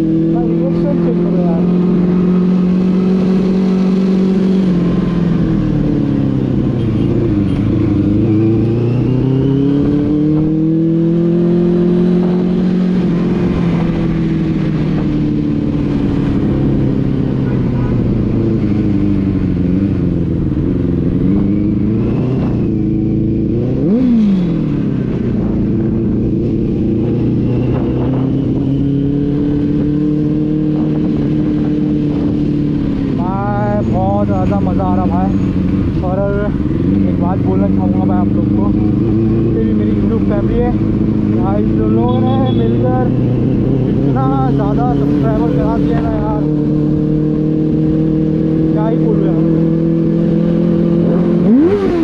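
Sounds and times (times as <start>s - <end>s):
motorcycle engine revving: 0.0s - 52.0s.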